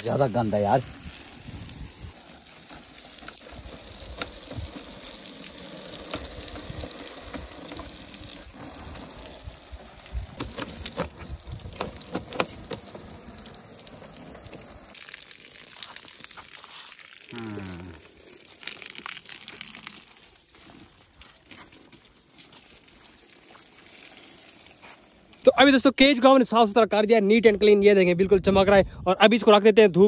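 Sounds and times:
hose water spraying on wire mesh: 0.0s - 25.5s
sharp clicks and knocks: 10.4s - 12.8s.

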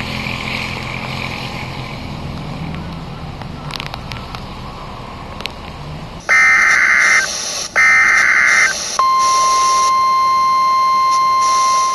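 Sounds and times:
outdoor noise: 0.0s - 11.9s
loud buzzing alert bursts: 6.3s - 9.9s
long steady beep: 6.3s - 11.9s.

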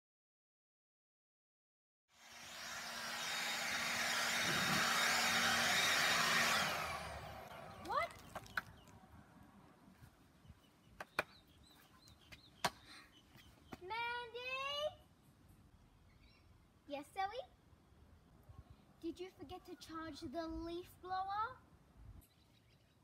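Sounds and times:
leaf blower whine and air rush: 2.1s - 8.1s.

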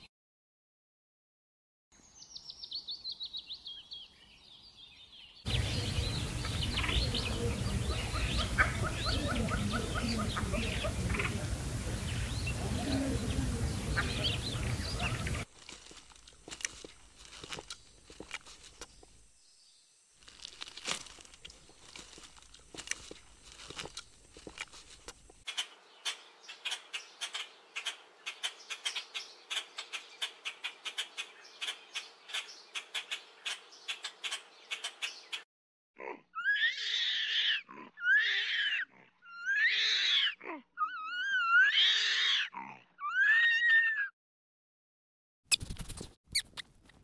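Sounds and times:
animal squealing calls: 36.3s - 44.1s.

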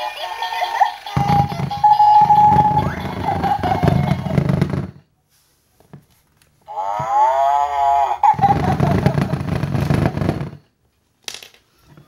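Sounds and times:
toy giggling: 0.0s - 4.4s, 6.7s - 9.5s.

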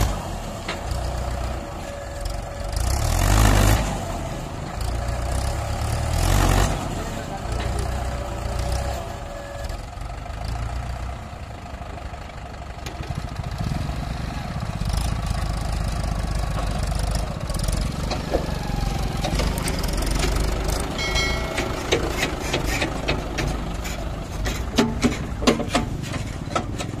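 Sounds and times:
tractor diesel engine running: 0.0s - 27.0s
sharp knocks and rattles: 19.2s - 27.0s.

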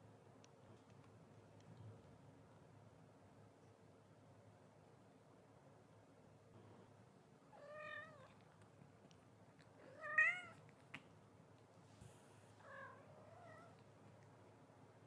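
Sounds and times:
cat meowing: 7.6s - 8.4s, 9.9s - 10.6s.

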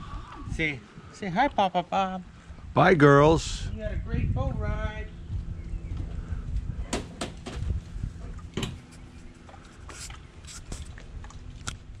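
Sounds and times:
low rumble: 3.4s - 9.4s.

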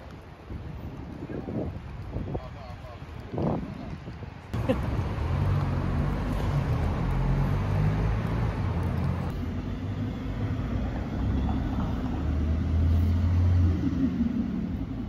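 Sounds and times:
traffic engines humming: 4.3s - 15.0s.

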